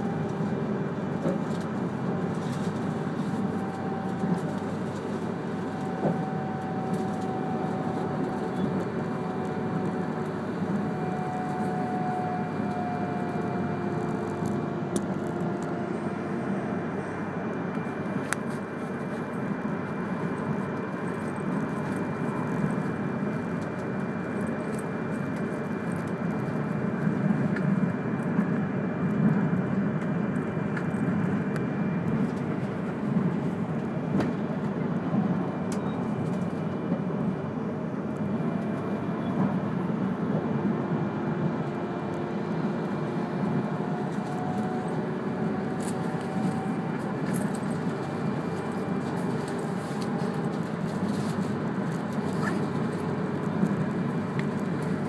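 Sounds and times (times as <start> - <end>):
faint whining tones: 0.0 - 24.4
train wheels rumbling on rail: 0.0 - 55.0.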